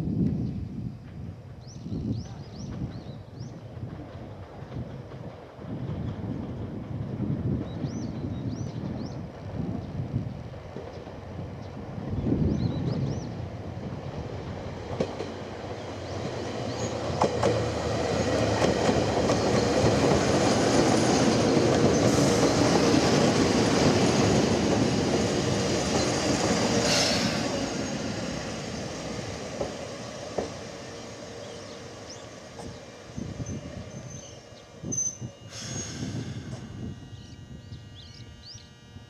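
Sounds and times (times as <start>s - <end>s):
electric train moving: 2.7s - 39.0s
brief hiss: 35.5s - 36.9s.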